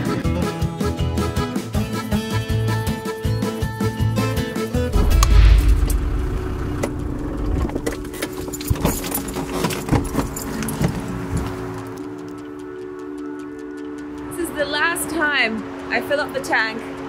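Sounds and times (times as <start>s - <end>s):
engine and road rumble: 4.9s - 12.2s.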